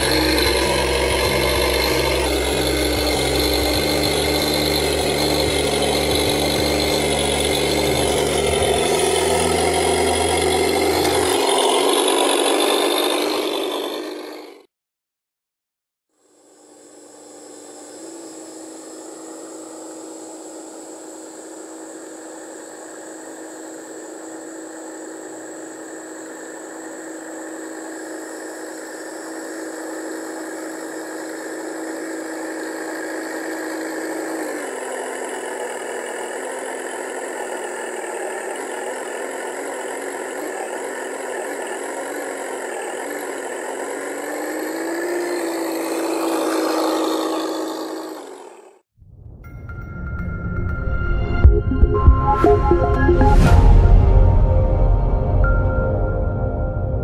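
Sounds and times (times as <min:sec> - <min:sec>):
simulated engine sound from speaker: 0:00.0 - 0:13.8.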